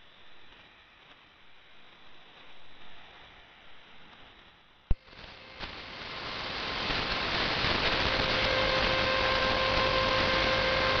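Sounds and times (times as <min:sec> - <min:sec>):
shortwave receiver hiss: 0:04.9 - 0:11.0.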